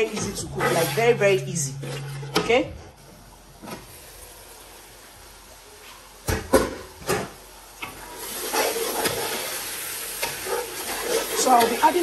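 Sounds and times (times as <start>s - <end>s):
sauce simmering hiss: 3.0s - 12.0s.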